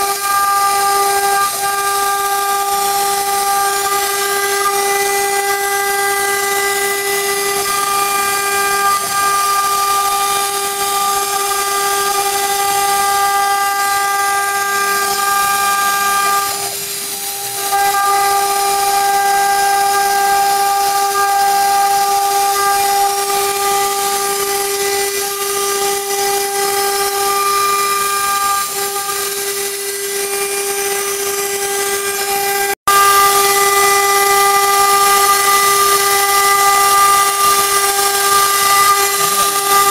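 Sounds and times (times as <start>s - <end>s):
router spindle whining: 0.0s - 39.9s.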